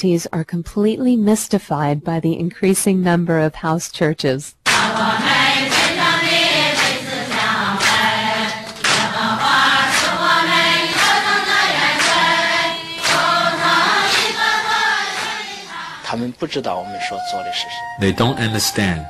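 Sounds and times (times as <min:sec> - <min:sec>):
congregation singing a hymn: 0:04.7 - 0:16.2.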